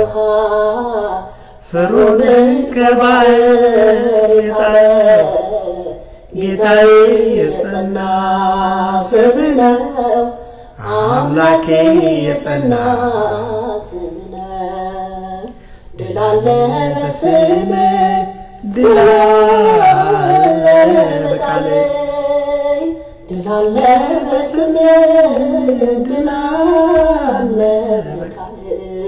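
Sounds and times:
man singing unaccompanied hymn: 0.0 - 29.0
singer breathing: 1.3 - 1.7, 6.0 - 6.4, 10.4 - 10.8, 15.5 - 16.0.

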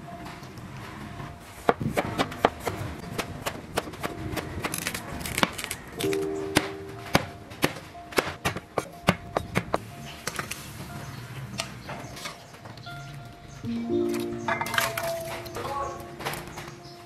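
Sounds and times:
background music: 5.9 - 11.6, 12.8 - 17.0.

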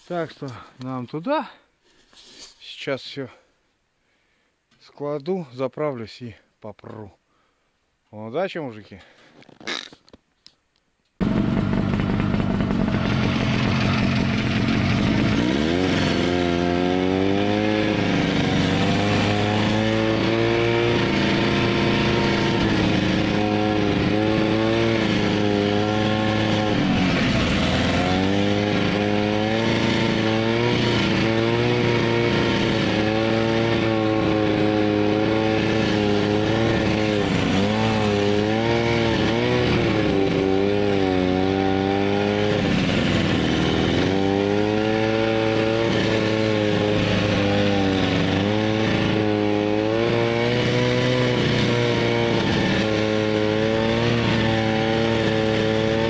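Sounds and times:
snowmobile engine running: 11.2 - 56.0.

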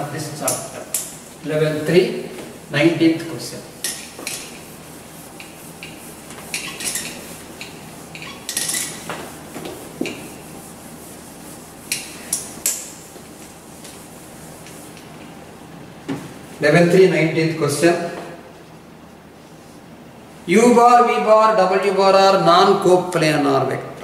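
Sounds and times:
duster wiping a whiteboard: 0.1 - 15.4.

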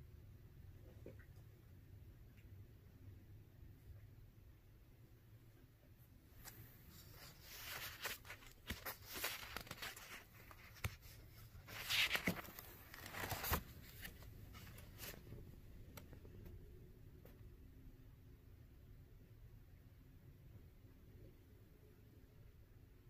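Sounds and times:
card page turning: 6.4 - 16.1.

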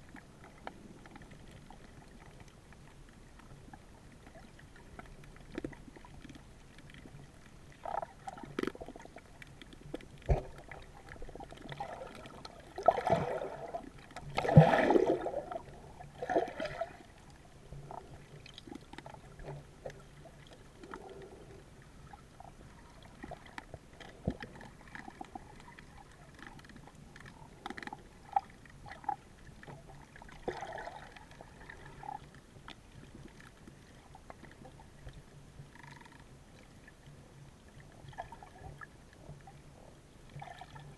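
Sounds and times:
gurgling water and bubbles: 0.0 - 40.9.

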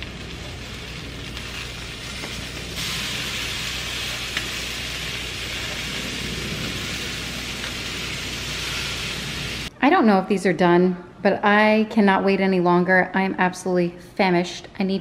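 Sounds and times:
chicken sizzling on a grill: 0.0 - 9.7.

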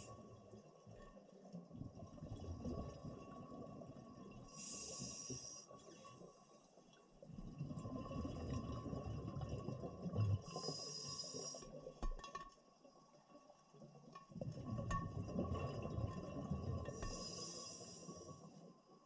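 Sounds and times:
underwater bubbles gurgling: 0.0 - 19.0
regulator inhalation hiss: 4.6 - 5.6, 10.5 - 11.6, 17.0 - 18.3.

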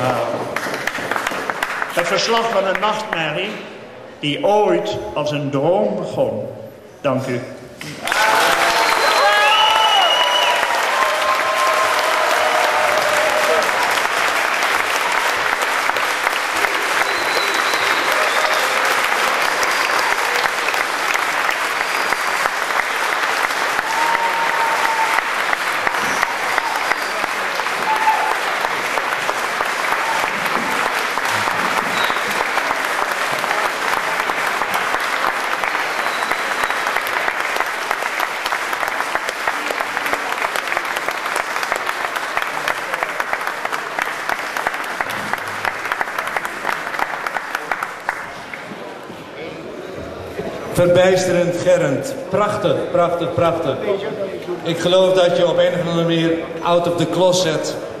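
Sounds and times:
audience applauding: 0.0 - 3.2, 7.8 - 49.0
short calls from audience: 16.5 - 22.8, 23.5 - 28.7.

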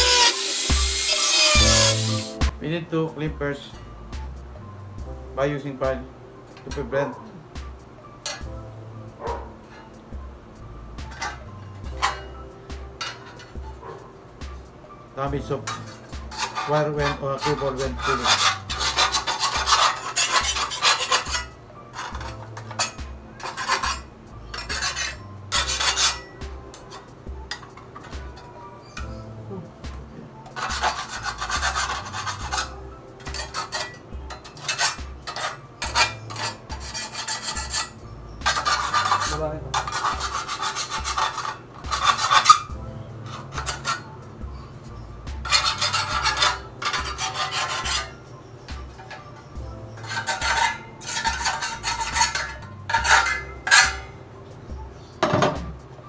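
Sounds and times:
file rasping on metal: 0.0 - 2.4, 15.7 - 27.1, 30.6 - 42.7, 43.3 - 44.1, 45.4 - 48.2, 49.8 - 54.1.

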